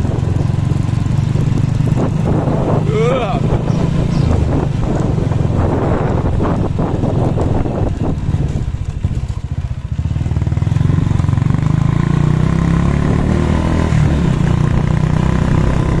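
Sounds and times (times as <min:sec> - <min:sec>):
tyres on cobblestones: 0:00.0 - 0:16.0
vehicle engine revving: 0:00.0 - 0:16.0.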